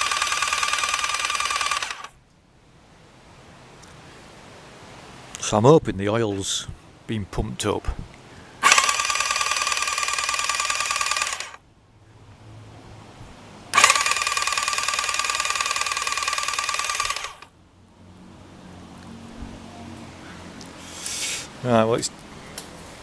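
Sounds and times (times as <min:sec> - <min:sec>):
starter motor spinning engine: 0:00.0 - 0:02.1, 0:08.6 - 0:11.6, 0:13.7 - 0:17.5.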